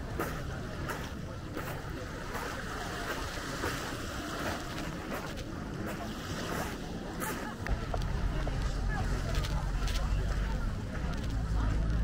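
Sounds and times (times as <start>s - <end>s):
surf washing in: 0.1s - 9.2s.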